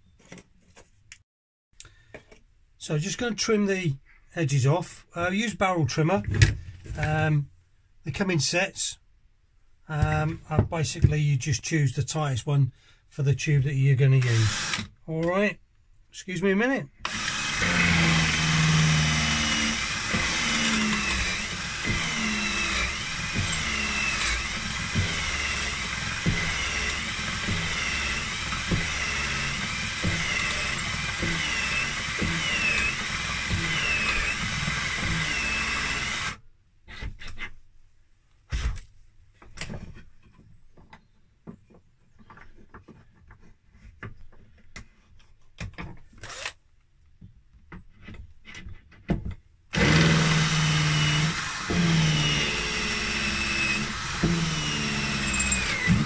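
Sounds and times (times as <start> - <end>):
cordless drill spinning: 14.2 - 14.9, 17.0 - 36.4, 46.2 - 46.5, 49.8 - 56.0.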